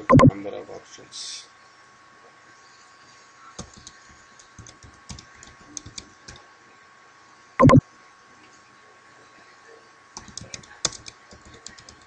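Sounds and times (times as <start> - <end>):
keyboard key clicks: 3.6 - 6.4, 10.2 - 12.0.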